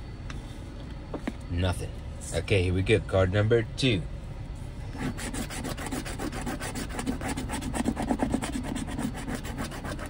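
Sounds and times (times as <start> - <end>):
coin scraping a scratch card: 5.0 - 10.0.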